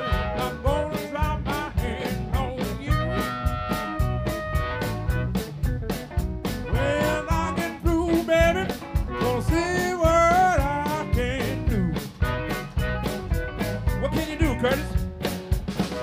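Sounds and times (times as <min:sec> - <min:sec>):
harmonica lead: 0:00.0 - 0:15.1
bass guitar: 0:00.0 - 0:16.0
drums: 0:00.0 - 0:16.0
electric guitars: 0:00.0 - 0:16.0.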